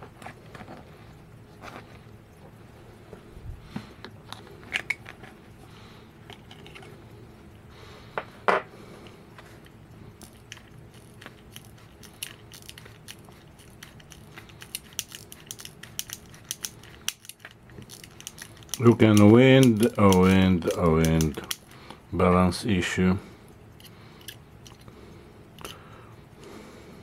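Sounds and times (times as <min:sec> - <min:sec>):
ratchet clicks of watch winding: 0:10.2 - 0:21.8.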